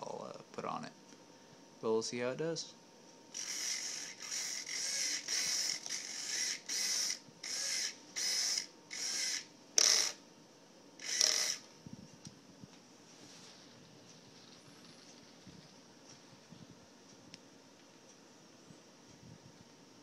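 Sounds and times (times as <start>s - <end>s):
servo motors whirring: 3.4s - 10.2s, 11.0s - 11.6s.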